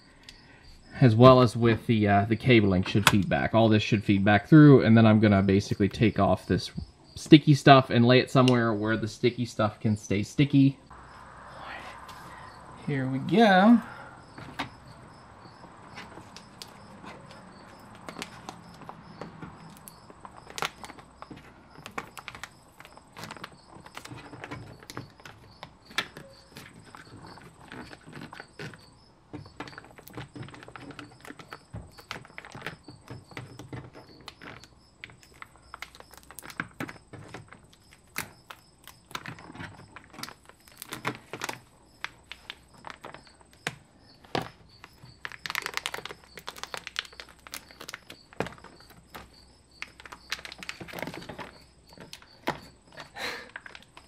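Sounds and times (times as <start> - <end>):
plastic sheet peeling off crackling: 16.0 - 28.9, 29.6 - 52.7.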